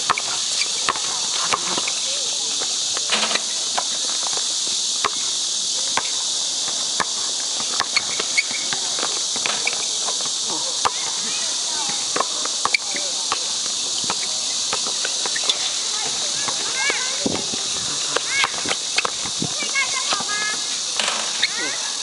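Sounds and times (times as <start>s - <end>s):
insect chorus: 0.0s - 22.0s
basketball bouncing on court: 0.8s - 1.8s.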